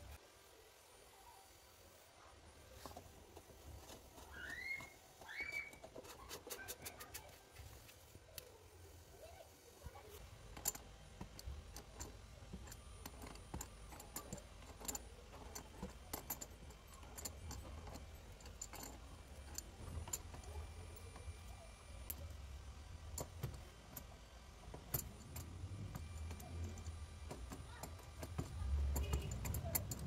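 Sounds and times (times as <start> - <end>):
wrench clicking on metal nuts: 10.4 - 30.0.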